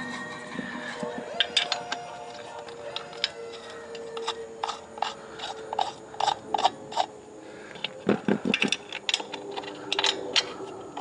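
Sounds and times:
light metallic clicks of bolts: 0:07.8 - 0:10.6.

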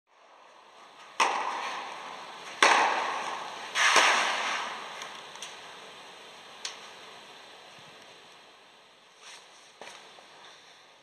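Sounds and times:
tennis ball hit by racket: 0:01.2 - 0:01.9, 0:02.6 - 0:04.7.

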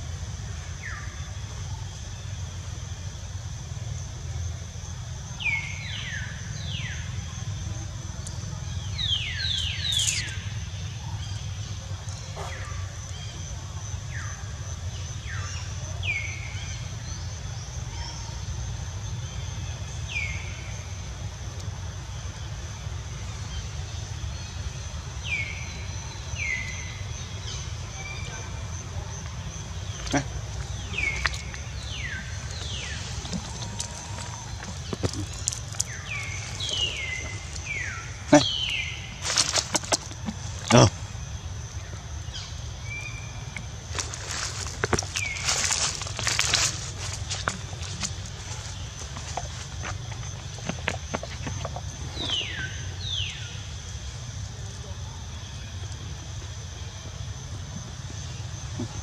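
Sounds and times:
steady low rumble: 0:18.6 - 0:54.7.

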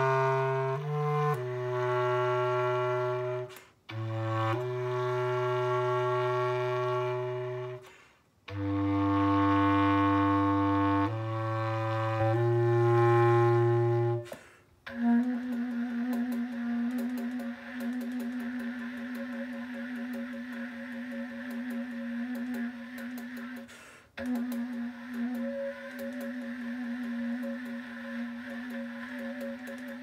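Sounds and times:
bass clarinet low notes: 0:00.0 - 0:30.0
quiet steady held tone: 0:16.8 - 0:30.0.

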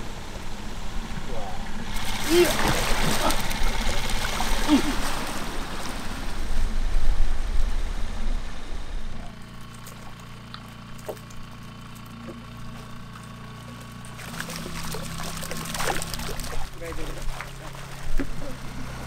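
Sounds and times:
water rushing: 0:00.0 - 0:09.1, 0:14.2 - 0:19.0
low machine hum: 0:00.0 - 0:19.0
water splashing: 0:01.0 - 0:07.0, 0:09.4 - 0:19.0.

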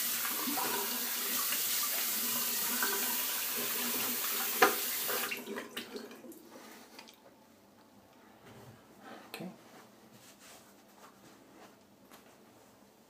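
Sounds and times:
sink tap running: 0:00.0 - 0:05.5.

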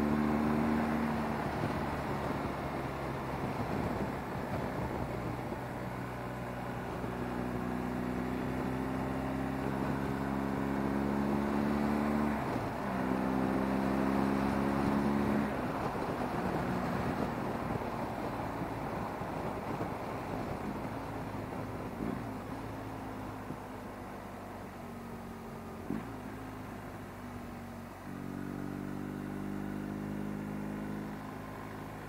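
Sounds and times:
rushing wind noise: 0:01.4 - 0:05.8, 0:15.3 - 0:22.4.

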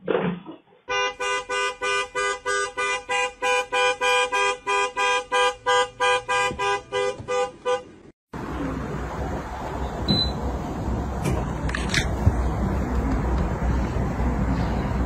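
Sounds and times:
car alarm horn pulsing: 0:00.9 - 0:08.0.

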